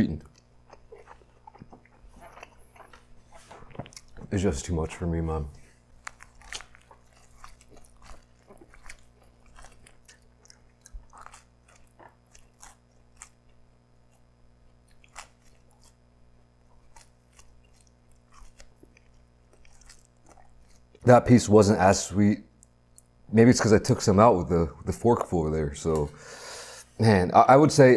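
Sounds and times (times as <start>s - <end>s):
close chewing with mouth clicks: 0.2s - 4.3s, 5.8s - 21.0s.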